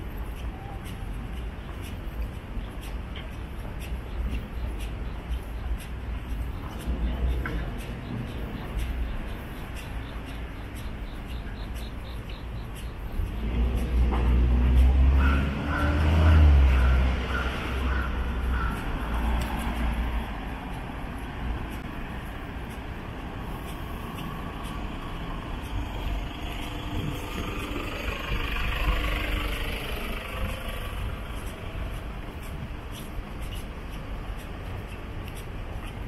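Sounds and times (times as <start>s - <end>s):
traffic rumble: 0.0s - 36.0s
vehicle passing close: 13.2s - 21.8s, 22.5s - 32.5s.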